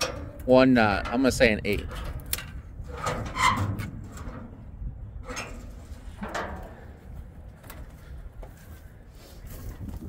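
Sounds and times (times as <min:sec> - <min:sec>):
metal hood scraping and clunking: 0:00.0 - 0:09.0.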